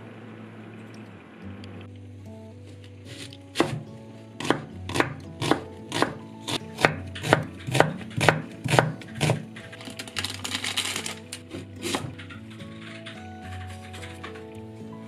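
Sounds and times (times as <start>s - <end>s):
knife slicing onion on board: 3.1s - 9.5s, 11.5s - 12.2s.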